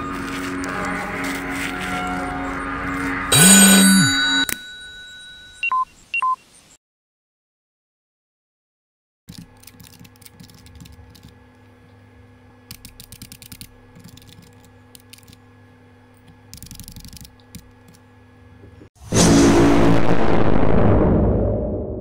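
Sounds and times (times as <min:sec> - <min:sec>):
keyboard typing: 0:12.7 - 0:15.4, 0:16.3 - 0:18.0
loud ringing boom: 0:19.0 - 0:22.0.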